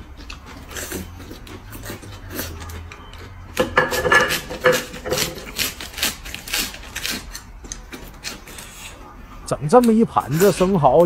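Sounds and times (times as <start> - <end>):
lettuce being bitten and chewed: 0.0 - 3.6, 4.4 - 9.0.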